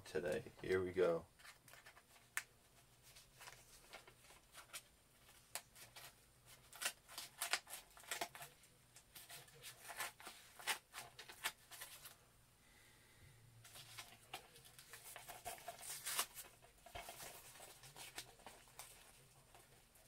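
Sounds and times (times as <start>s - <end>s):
paper mailer crinkling: 13.7s - 20.0s.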